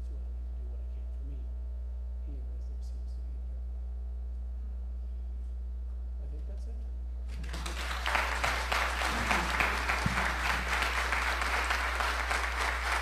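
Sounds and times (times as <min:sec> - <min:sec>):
low electrical hum: 0:00.0 - 0:13.0
congregation applauding: 0:07.3 - 0:13.0.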